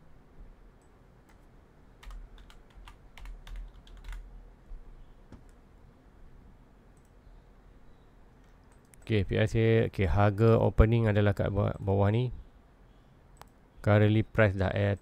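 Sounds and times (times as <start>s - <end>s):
faint keyboard typing: 0.8s - 4.3s, 6.9s - 7.2s, 8.4s - 9.2s.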